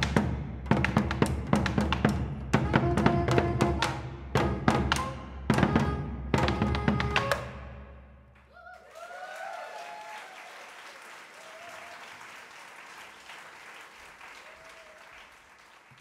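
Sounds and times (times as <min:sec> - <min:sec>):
shouted cheers: 0:08.5 - 0:12.6, 0:14.3 - 0:15.4
audience applauding: 0:08.6 - 0:16.0.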